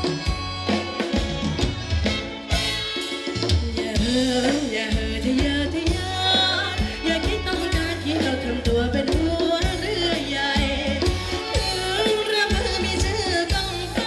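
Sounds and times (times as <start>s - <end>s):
person singing: 3.5s - 14.0s.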